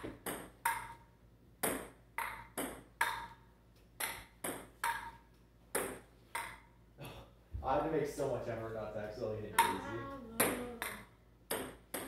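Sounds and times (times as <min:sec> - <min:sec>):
ping pong ball clicking: 0:00.2 - 0:01.0, 0:01.6 - 0:03.4, 0:04.0 - 0:06.7, 0:10.4 - 0:12.0.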